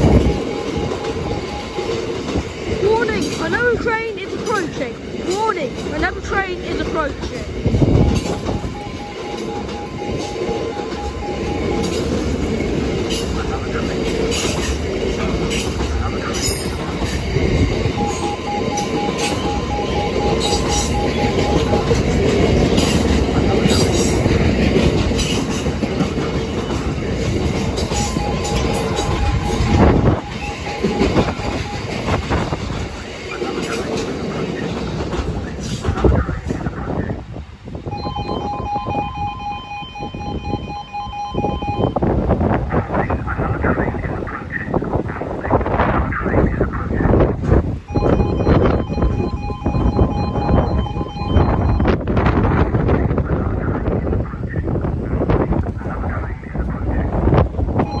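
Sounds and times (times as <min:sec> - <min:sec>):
level crossing alarm warbling: 0:00.0 - 0:12.8, 0:17.6 - 0:22.8, 0:27.7 - 0:32.9, 0:37.9 - 0:42.2, 0:47.8 - 0:52.1, 0:57.8 - 0:58.0
freight train rumbling past: 0:00.0 - 0:58.0.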